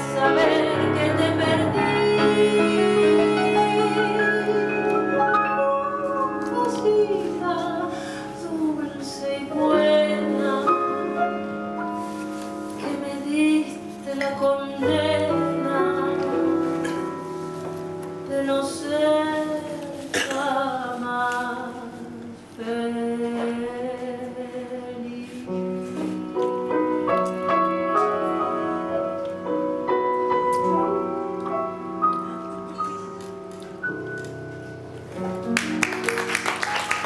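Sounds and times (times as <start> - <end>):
woman singing a tango: 0.0 - 12.0, 12.6 - 26.2
grand piano accompaniment: 0.0 - 37.0.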